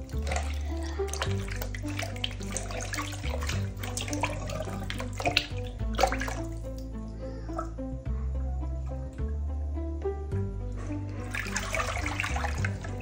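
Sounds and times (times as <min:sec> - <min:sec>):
water splashing in a bowl: 0:00.0 - 0:06.9, 0:10.8 - 0:13.0
background music with bass line: 0:00.0 - 0:13.0.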